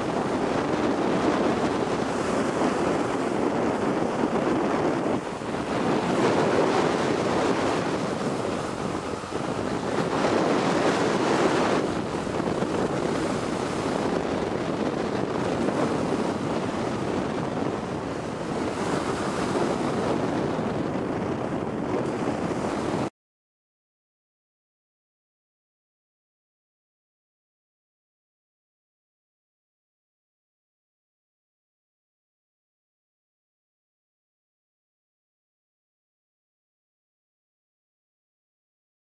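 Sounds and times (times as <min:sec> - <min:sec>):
breaking surf: 0:00.0 - 0:23.1
wind buffeting microphone: 0:00.0 - 0:23.1.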